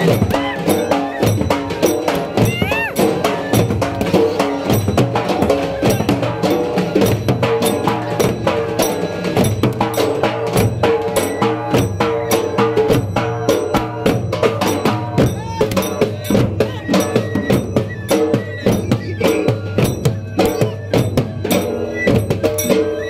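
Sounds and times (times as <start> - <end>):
music with fast percussion: 0.0 - 23.0.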